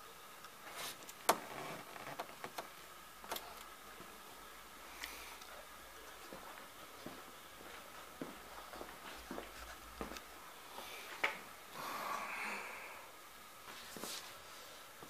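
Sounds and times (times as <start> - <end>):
soft hiss: 0.0 - 15.0
faint footsteps on concrete: 6.2 - 10.3.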